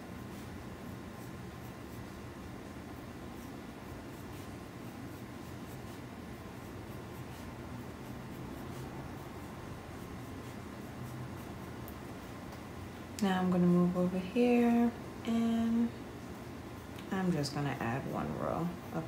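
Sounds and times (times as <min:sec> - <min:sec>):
pencil scratching on paper: 0:00.3 - 0:11.8.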